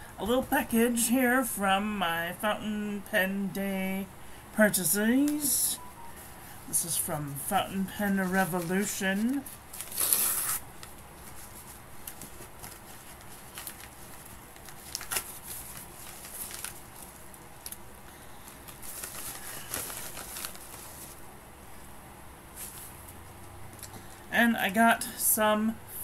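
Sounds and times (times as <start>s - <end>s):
paper mailer rustling and crinkling: 6.8s - 21.3s.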